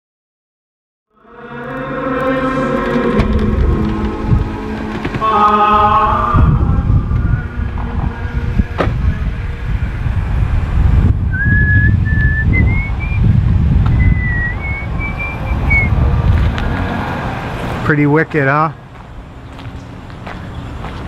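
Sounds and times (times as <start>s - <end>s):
traffic rumble: 1.2s - 21.0s
wind noise: 1.4s - 17.8s
person whistling a tune: 11.3s - 13.3s, 13.9s - 15.9s.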